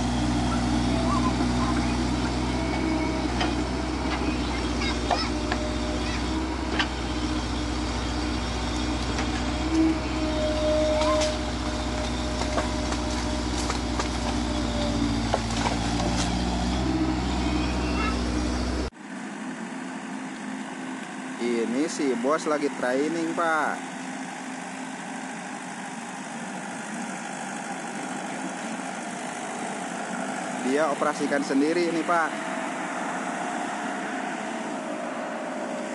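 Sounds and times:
excavator diesel engine: 0.0 - 35.9
wood cracking and knocking: 11.9 - 16.5.

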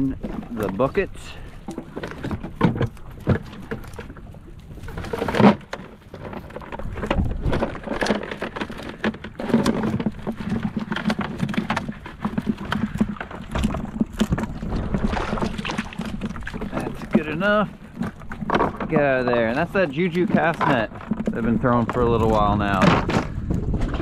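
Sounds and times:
fish flapping in a bucket: 0.0 - 24.0
water splashing: 0.0 - 24.0.

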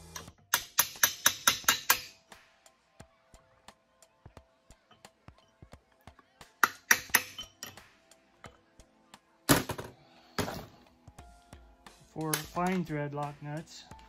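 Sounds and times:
hammer striking metal: 0.1 - 2.2, 6.6 - 7.8.

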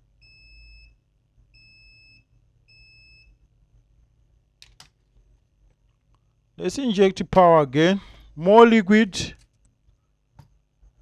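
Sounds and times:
multimeter continuity beeps: 0.2 - 3.4.

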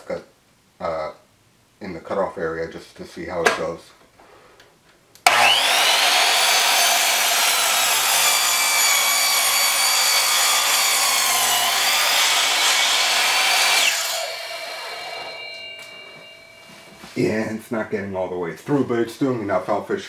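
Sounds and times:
saw blade cutting paper roll: 5.3 - 16.9
miter saw motor whining: 5.3 - 17.0.

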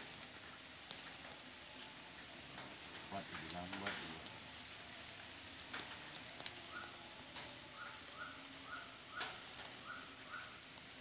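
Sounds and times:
high insect drone: 0.7 - 4.9, 6.0 - 10.7.

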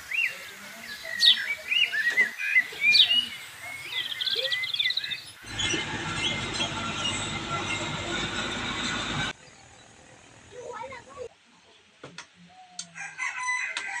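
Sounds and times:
songbirds chirping and whistling: 0.0 - 8.4
wheel loader engine running: 5.4 - 10.6.

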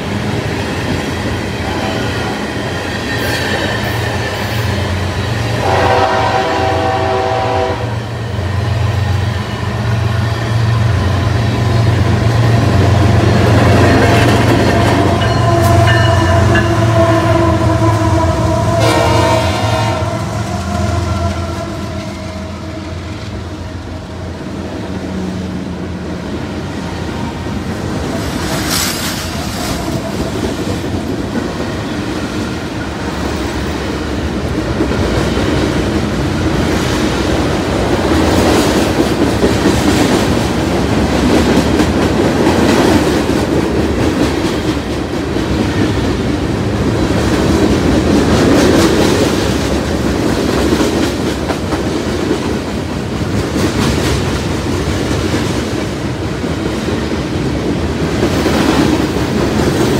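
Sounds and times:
locomotive air horn: 5.5 - 8.2, 15.0 - 23.3
train wheels clacking on rails: 8.5 - 22.6, 26.4 - 59.9.

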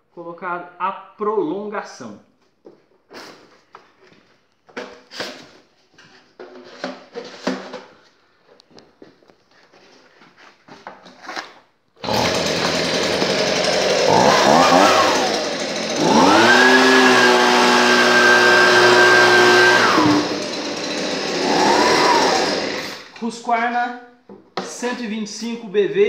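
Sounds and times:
leaf blower engine revving: 12.0 - 23.2.

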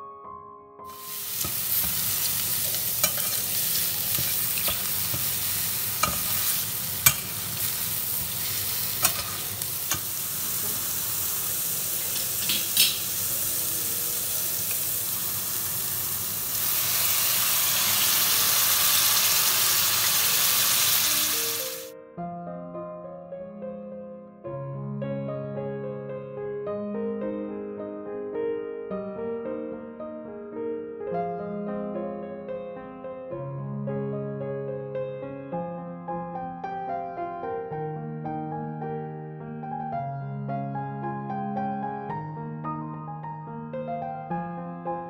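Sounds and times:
vegetables sizzling in oil: 0.9 - 21.9
spatula scraping against pan: 1.2 - 10.9.

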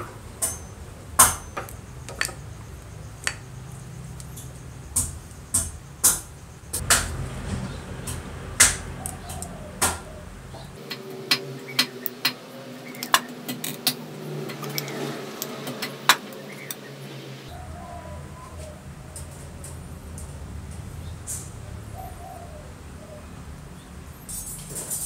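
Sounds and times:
metal parts clicking and clinking: 1.4 - 2.5, 10.9 - 16.8, 24.3 - 25.0.

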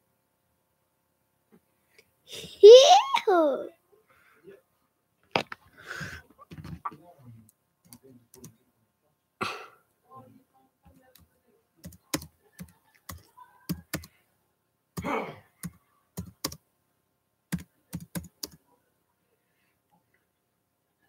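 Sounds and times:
keyboard typing clicks: 11.8 - 14.1, 15.6 - 16.6, 17.5 - 18.6.

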